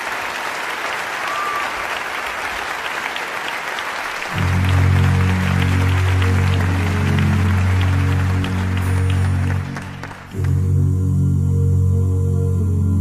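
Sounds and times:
audience applauding: 0.0s - 10.7s
low sustained music chord: 4.3s - 13.0s.

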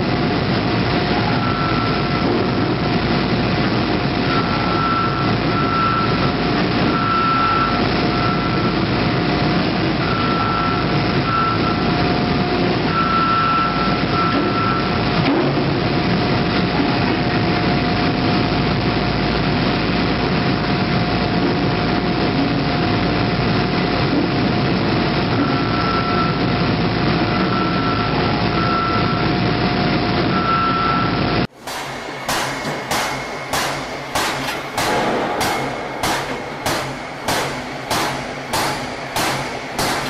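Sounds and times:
warning beeper beeping: 1.2s - 2.3s, 4.2s - 8.8s, 10.0s - 11.9s, 12.8s - 15.0s, 25.3s - 26.4s
forging machinery din: 31.5s - 40.0s.

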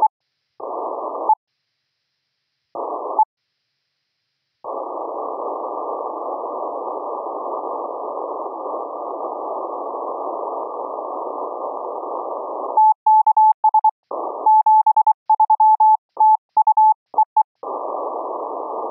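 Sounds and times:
shortwave receiver hiss: 0.0s - 12.9s, 17.6s - 18.9s.

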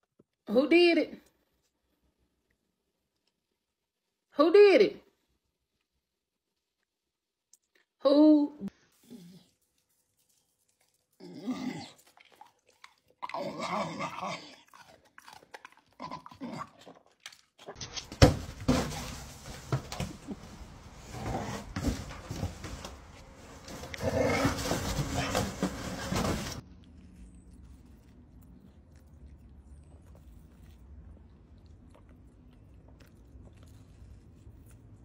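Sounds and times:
dog rustling in cardboard box: 18.1s - 26.6s.

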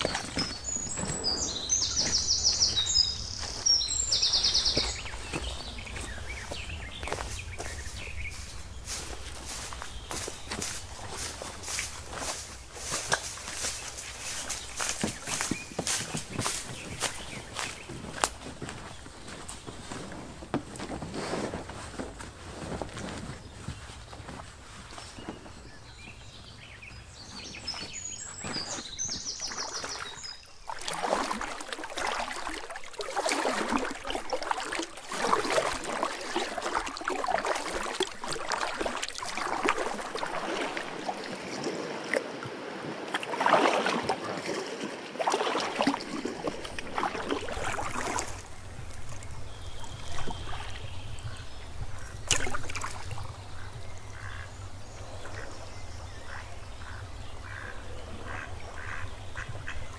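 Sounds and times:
bird chirping: 0.0s - 18.2s
water splashing and sloshing: 0.0s - 59.9s.

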